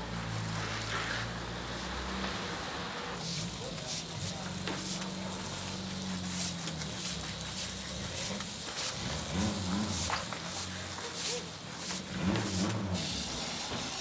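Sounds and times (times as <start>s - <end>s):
street traffic: 0.0s - 14.0s
car engine running: 2.6s - 13.8s.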